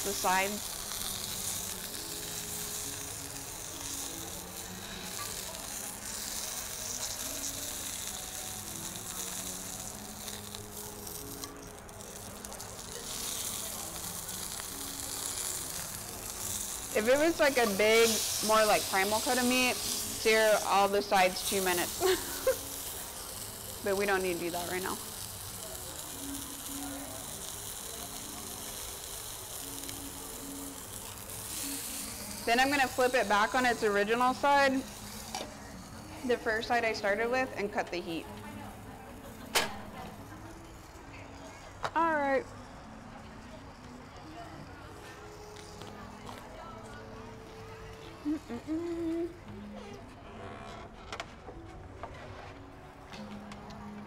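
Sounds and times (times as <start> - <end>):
meat sizzling in a hot pan: 0.0 - 41.0.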